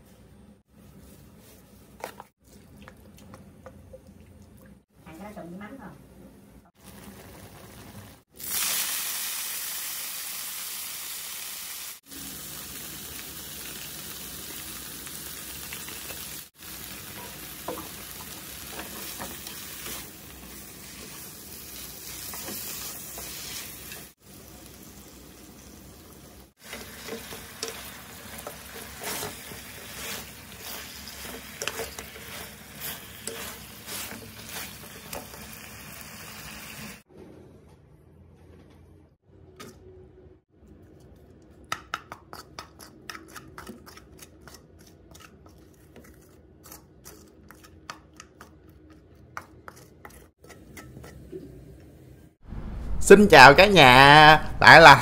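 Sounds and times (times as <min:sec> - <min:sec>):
ribs sizzling in a hot pan: 0:08.4 - 0:25.9, 0:26.6 - 0:37.0
clatter of stirring: 0:31.2 - 0:32.5.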